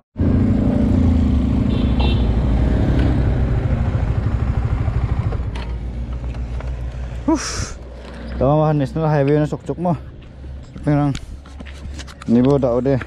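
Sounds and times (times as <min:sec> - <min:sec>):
motorcycle engine idling: 0:03.4 - 0:06.6.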